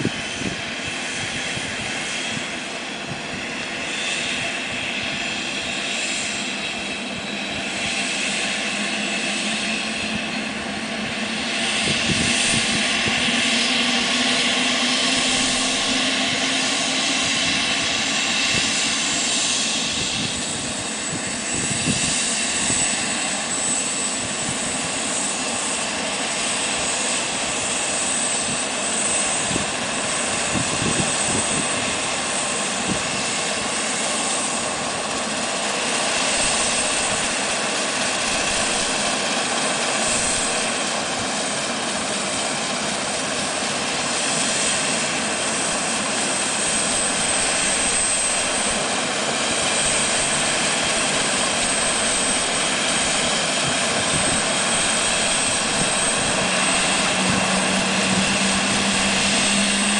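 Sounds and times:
helicopter turbine whine: 0.0 - 59.9
rotor rushing: 49.7 - 59.9.

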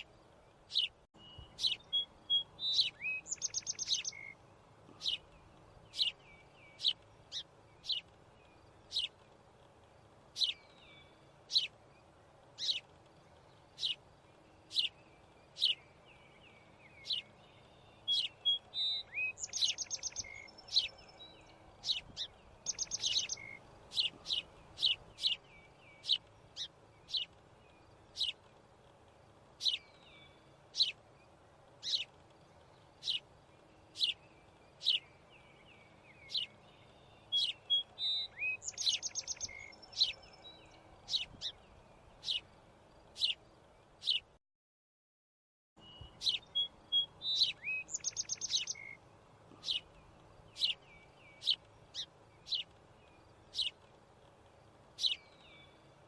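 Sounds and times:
small birds chirping: 0.0 - 44.4, 45.8 - 56.0
buzzy bird trills: 0.7 - 9.2, 10.3 - 11.9, 16.7 - 28.5, 29.6 - 31.1, 31.7 - 32.2, 32.9 - 42.5, 46.0 - 56.0.

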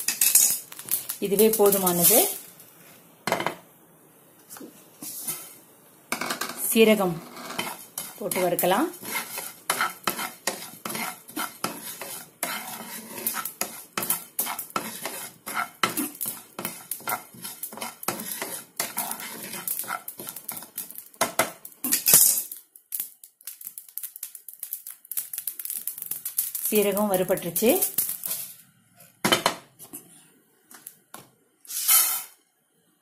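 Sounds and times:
seeds rattling in pan: 0.0 - 2.5, 6.6 - 28.6
wooden spatula scraping pan: 6.3 - 21.4, 31.7 - 32.3.

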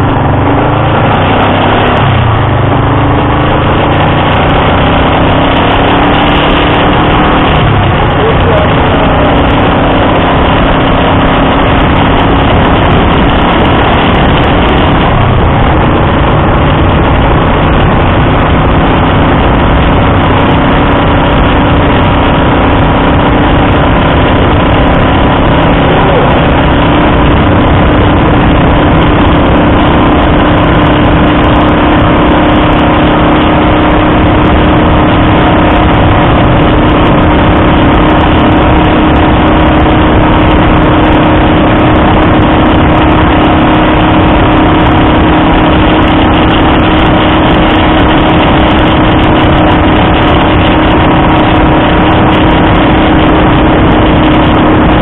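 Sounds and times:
wind rushing: 0.0 - 8.3
motorcycle engine cruising: 0.0 - 55.0
road noise: 0.0 - 55.0.

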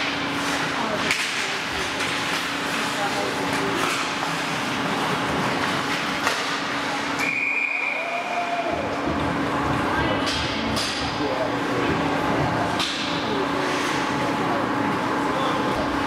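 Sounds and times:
hockey sticks clacking: 0.1 - 7.3
referee's whistle blast: 7.2 - 8.0
people shouting: 7.8 - 9.0.

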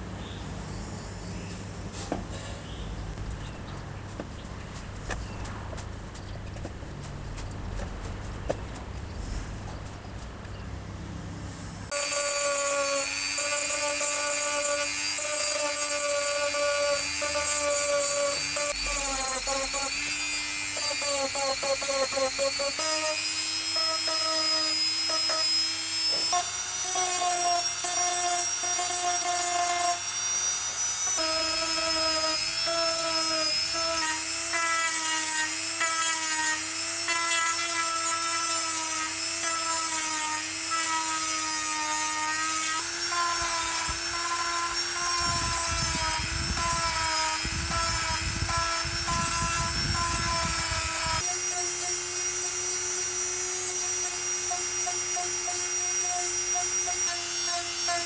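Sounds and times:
rotary tool sanding plastic: 11.9 - 58.0.

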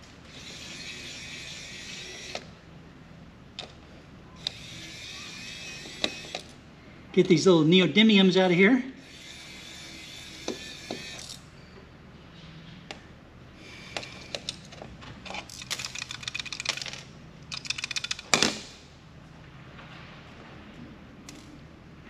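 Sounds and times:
electric screwdriver motor whirring: 0.3 - 2.5, 4.4 - 6.5, 9.0 - 11.4
ratchet-like clicking: 15.5 - 18.3.

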